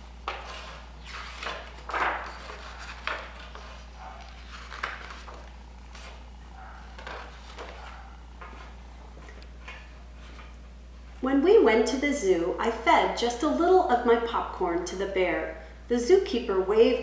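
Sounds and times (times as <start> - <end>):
book pages turning: 0.2 - 10.6.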